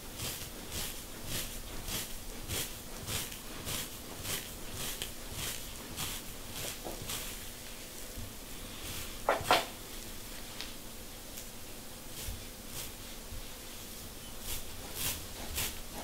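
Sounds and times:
comb scratching scalp: 0:00.0 - 0:10.1, 0:11.4 - 0:16.0.

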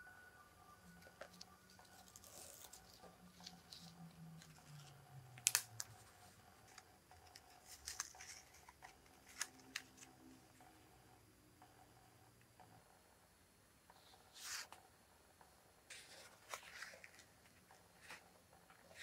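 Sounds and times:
paper rustling: 0:06.7 - 0:10.1, 0:15.9 - 0:18.2.

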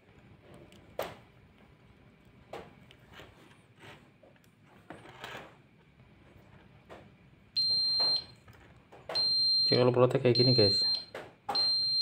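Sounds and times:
objects handled on a workbench: 0:02.4 - 0:07.2.

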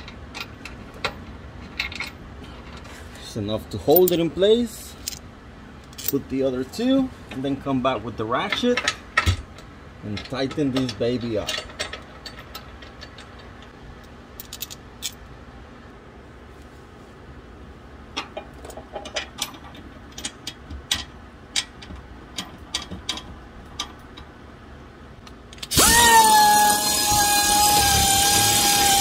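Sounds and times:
air ratchet whining: 0:25.6 - 0:29.0.

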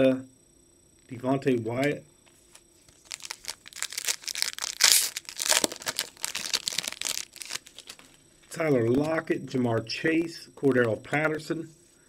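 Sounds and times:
foil wrapper crinkling and tearing: 0:02.9 - 0:08.1.

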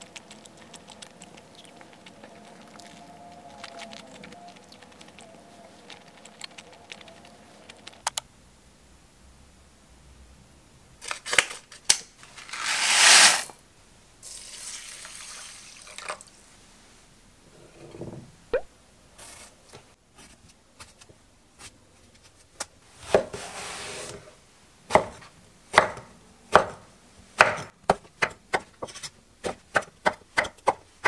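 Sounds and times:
rice pouring into glass bowl: 0:12.4 - 0:13.5, 0:14.2 - 0:16.2
water pouring: 0:14.2 - 0:16.4.

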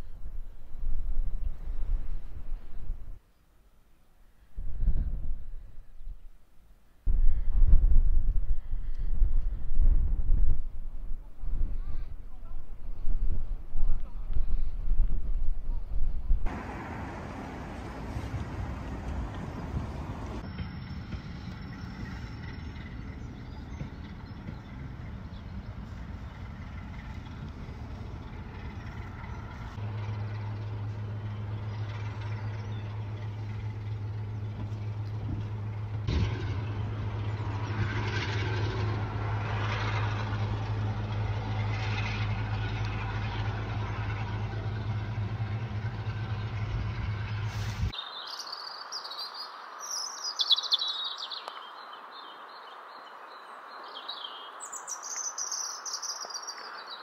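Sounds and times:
train engine hum and rumble: 0:08.2 - 0:48.0
robin singing: 0:48.0 - 0:57.0.

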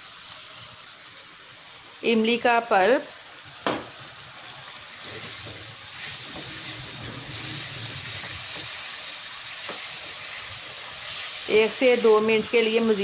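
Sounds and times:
masala frying with a hiss: 0:00.0 - 0:13.0.

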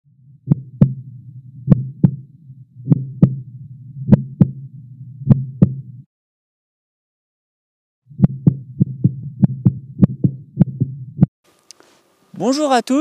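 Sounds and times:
low hum: 0:00.1 - 0:06.1, 0:08.1 - 0:11.3
heartbeat thumps: 0:00.2 - 0:06.1, 0:08.1 - 0:11.3.

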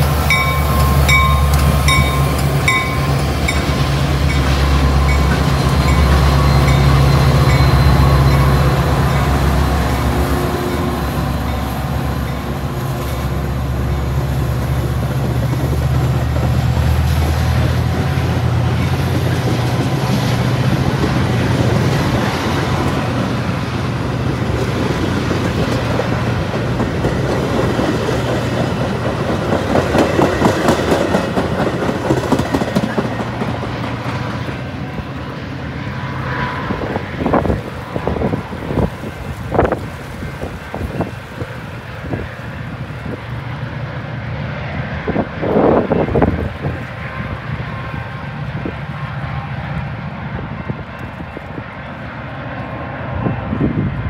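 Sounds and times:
diesel locomotive engines droning: 0:00.0 - 0:54.0
train wheels clacking over rail joints: 0:24.4 - 0:34.5.

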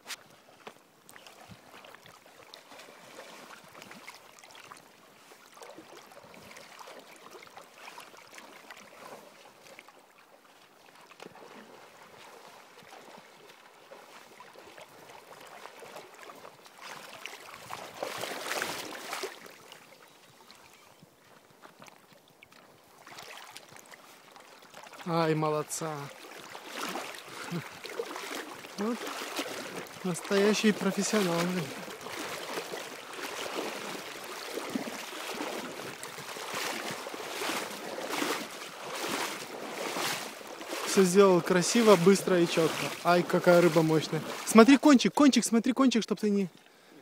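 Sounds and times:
fish thrashing in splashing water: 0:11.1 - 0:19.8, 0:26.1 - 0:44.6.

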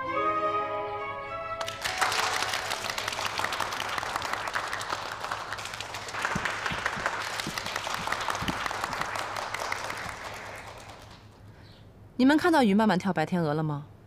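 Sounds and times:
people applauding: 0:01.6 - 0:11.4.

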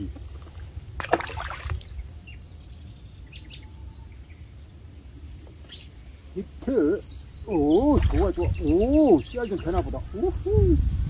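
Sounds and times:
water lapping: 0:00.0 - 0:02.0, 0:07.5 - 0:09.0
faint bird chirps: 0:00.0 - 0:11.0
wind rumble on microphone: 0:07.2 - 0:11.0.

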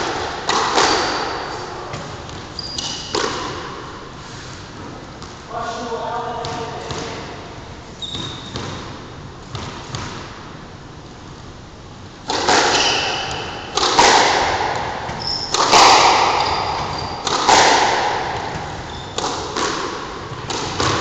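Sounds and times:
squash ball cracking off rackets: 0:00.0 - 0:03.7, 0:12.2 - 0:21.0.

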